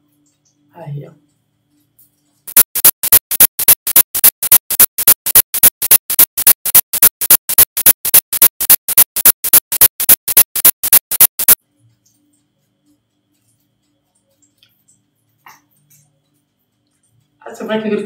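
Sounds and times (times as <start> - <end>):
short hissy electronic bursts: 2.5 - 11.6.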